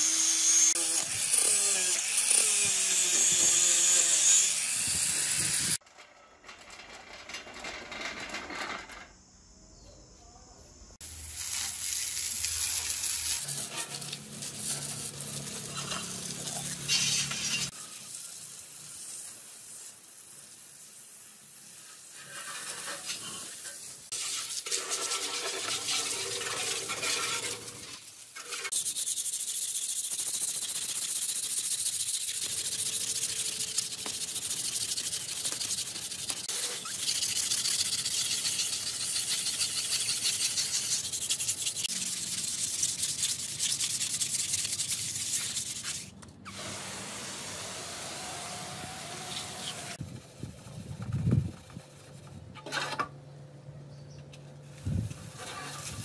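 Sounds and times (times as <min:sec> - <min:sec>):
angle grinder cutting: 0:00.0 - 0:05.8
hose water spraying: 0:11.0 - 0:51.0, 0:54.7 - 0:56.0
hand rubbing painted metal: 0:12.4 - 0:17.8, 0:21.6 - 0:46.2, 0:49.6 - 0:53.0, 0:54.6 - 0:56.0.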